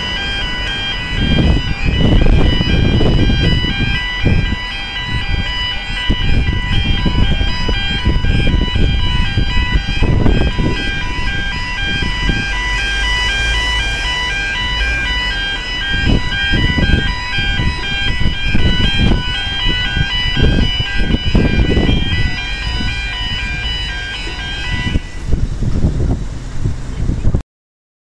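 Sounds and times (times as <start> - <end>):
two-tone crossing alarm warble: 0.0 - 25.6
wind buffeting microphone: 0.0 - 27.4.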